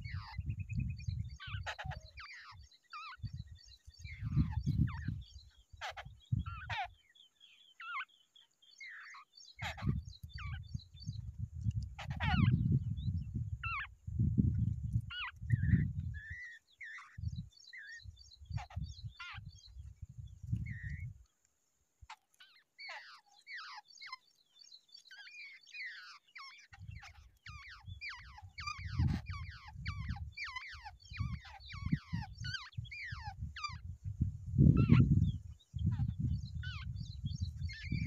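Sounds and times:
babblers calling: 1.4 - 3.3, 4.0 - 5.2, 5.8 - 7.0, 8.8 - 10.6, 12.0 - 12.6, 13.6 - 13.9, 17.8 - 19.5, 22.1 - 24.2, 25.0 - 33.8, 37.6 - 38.0.

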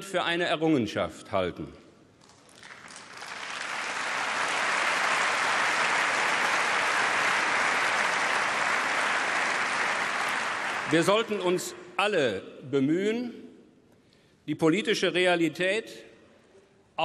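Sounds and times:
audience applause: 2.5 - 11.4.

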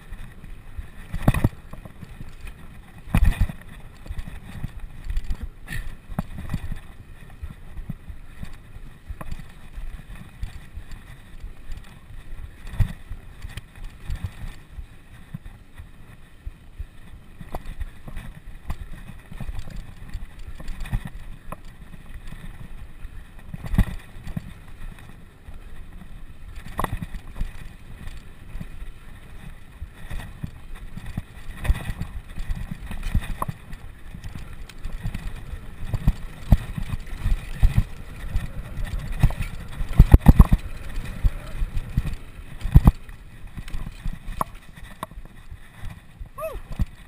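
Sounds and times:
road rumble: 0.0 - 47.0
wind buffeting microphone: 17.6 - 47.0.

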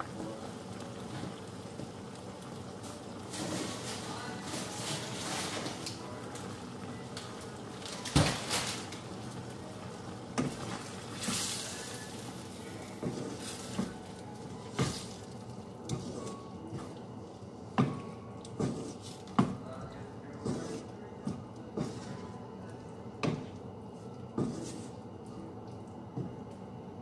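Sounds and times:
sauce bubbling in a pan: 0.0 - 4.4
spatula scraping a pan: 18.6 - 19.2, 20.4 - 20.9, 21.8 - 22.3, 24.4 - 25.0.

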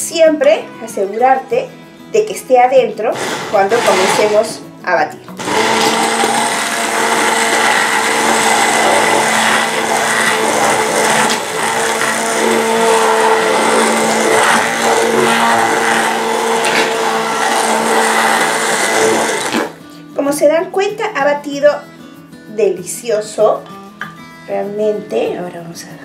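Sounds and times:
immersion blender motor whine: 3.2 - 4.6, 5.4 - 19.8.

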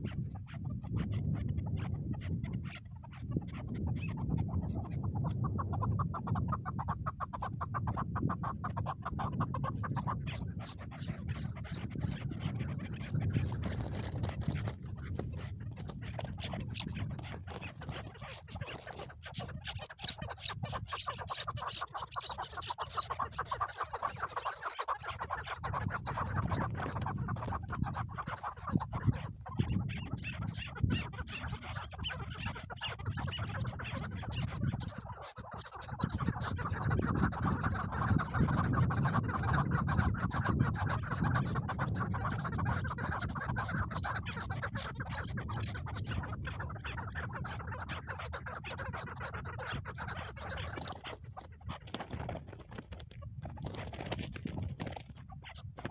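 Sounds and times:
partridges clucking chatter: 11.5 - 38.8, 49.0 - 55.9.

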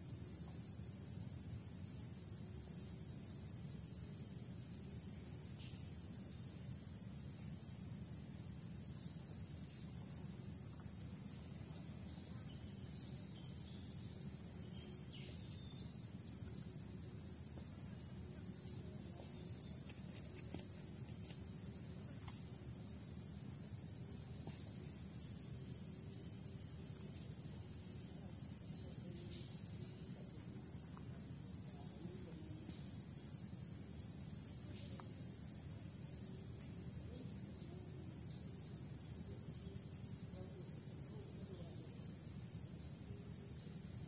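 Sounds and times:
low background hiss: 0.0 - 44.0
insects calling in chorus: 2.9 - 44.0.

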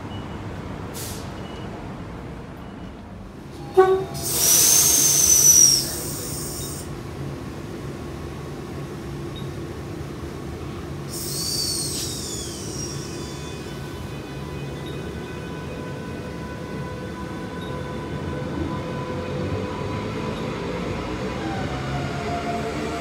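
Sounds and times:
train low hum: 0.0 - 23.0
hissing burst: 4.2 - 6.8.

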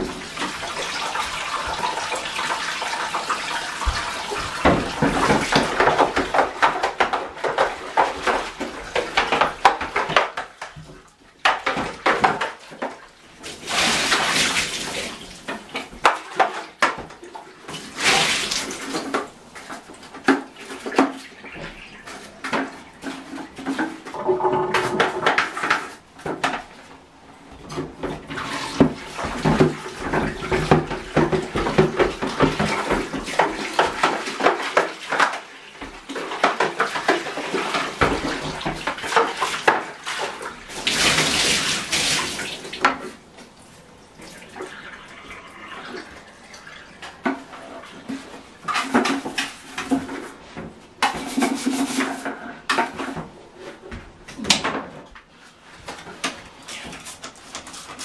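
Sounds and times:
water splashing in a bathtub: 0.0 - 58.0
plastic knocking against tub: 3.8 - 13.0, 27.6 - 39.9.

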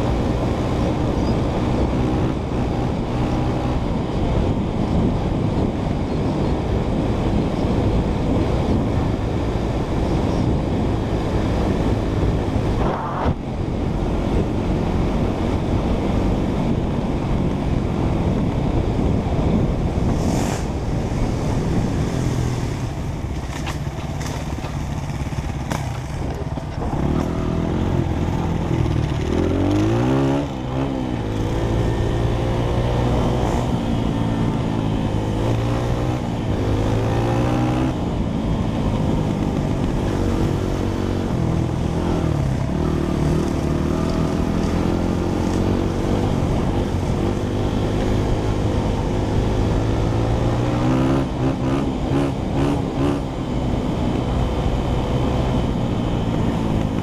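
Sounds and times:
motorbike engine revving: 19.9 - 57.0.

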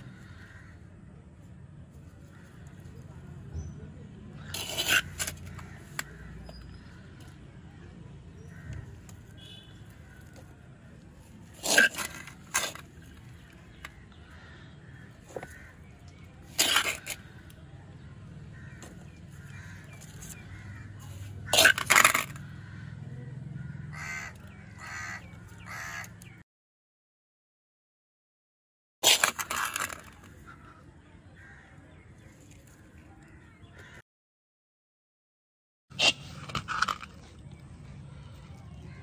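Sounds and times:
crows cawing: 0.0 - 1.0, 13.4 - 15.9, 18.5 - 26.4.

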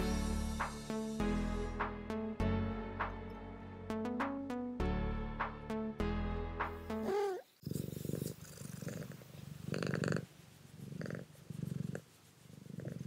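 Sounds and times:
cat purring: 7.0 - 13.0.

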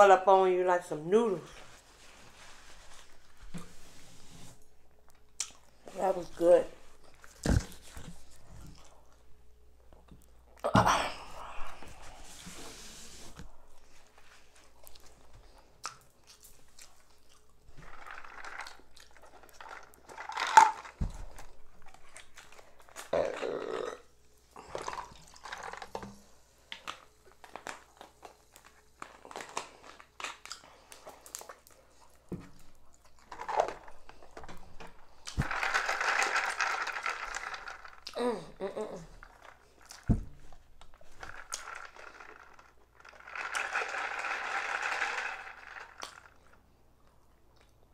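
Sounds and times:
plastic cups handled on table: 32.3 - 38.0.

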